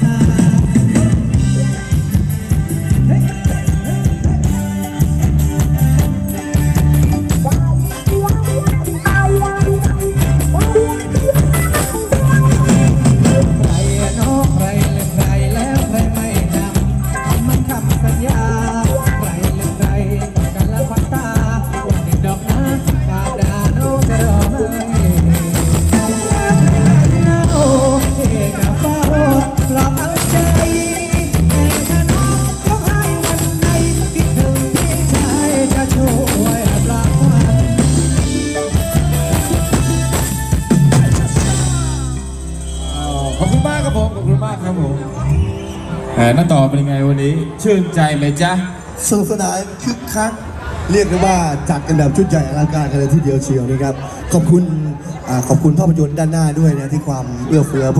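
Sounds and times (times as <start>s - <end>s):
person singing: 0.0s - 39.7s
drums and percussion beat: 0.0s - 44.2s
live band dance music: 0.0s - 57.9s.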